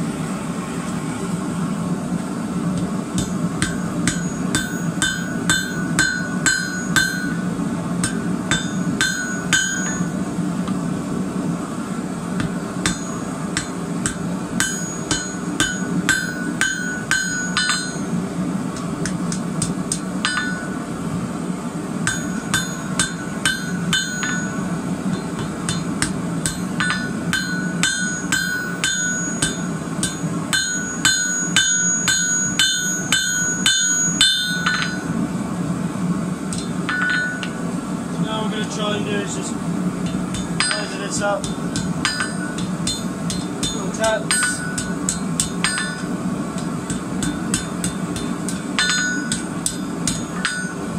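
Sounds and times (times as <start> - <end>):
steady low hum: 0.0 - 50.9
hammer striking metal on anvil: 2.8 - 10.2, 12.4 - 18.2, 18.8 - 20.8, 22.0 - 35.2, 36.5 - 37.6, 40.0 - 50.9.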